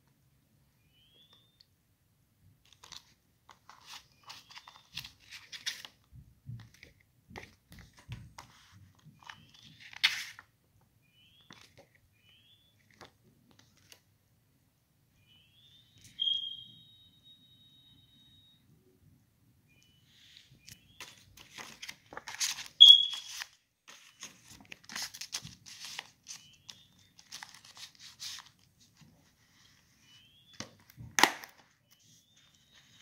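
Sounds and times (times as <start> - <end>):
plastic case and paper rustling: 2.6 - 10.5, 20.6 - 33.0
short high chirps: 15.2 - 18.6, 22.8 - 23.4.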